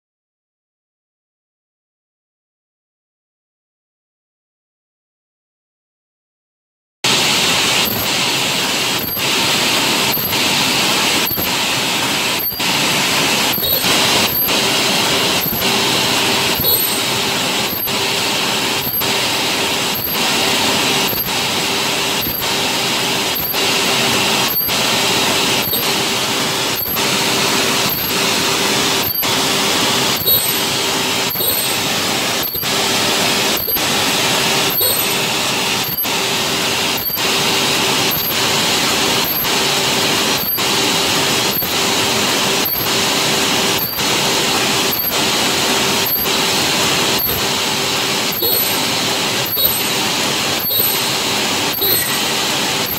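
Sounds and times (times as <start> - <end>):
welding machine whirring: 7.1 - 52.9.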